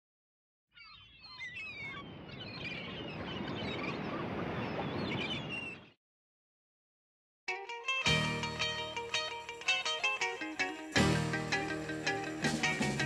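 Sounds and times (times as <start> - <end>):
birds calling: 0.7 - 6.0.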